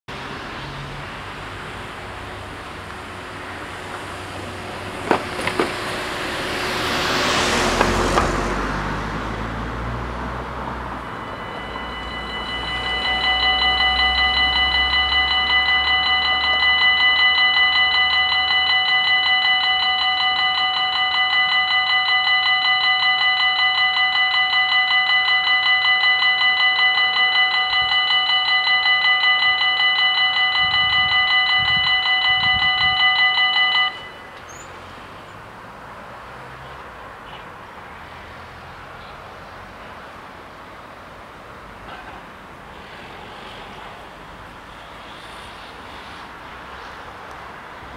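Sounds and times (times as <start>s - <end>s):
car driving over level crossing: 3.2s - 34.3s
electronic warning bells ringing: 10.4s - 34.7s.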